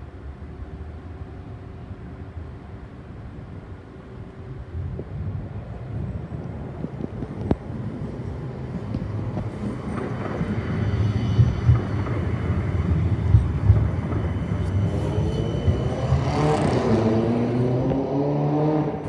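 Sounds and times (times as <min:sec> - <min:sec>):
tram rumbling past: 0:00.0 - 0:19.0
faint high whine: 0:09.0 - 0:17.8.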